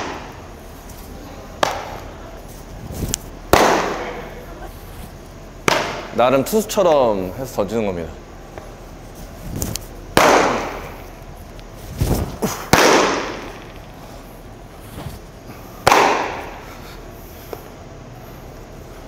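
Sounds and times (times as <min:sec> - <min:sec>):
ball smacking into leather glove: 0:12.4 - 0:13.6.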